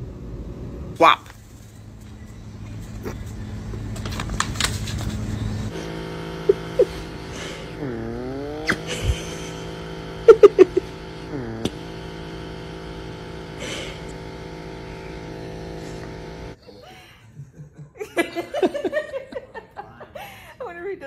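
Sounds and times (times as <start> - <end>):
electric nail grinder whirring: 5.7 - 16.6.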